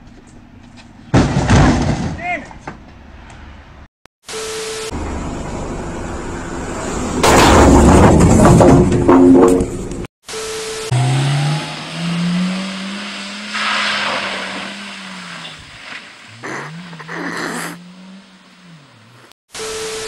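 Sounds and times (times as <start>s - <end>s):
car engine: 4.9s - 19.4s
water splashing from wheels: 11.0s - 17.1s.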